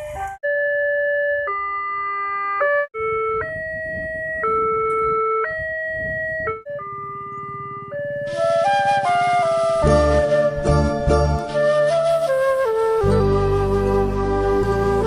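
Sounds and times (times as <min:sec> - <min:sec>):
level crossing electronic alarm: 0:00.0 - 0:09.1.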